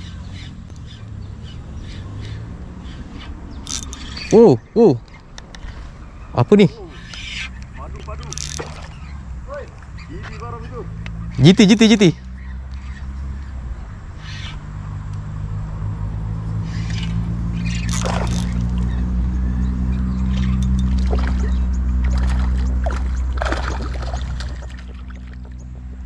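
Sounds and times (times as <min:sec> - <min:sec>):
low engine hum: 0:00.0 - 0:26.0
water splashes: 0:07.9 - 0:09.0, 0:17.7 - 0:19.1, 0:20.3 - 0:25.6.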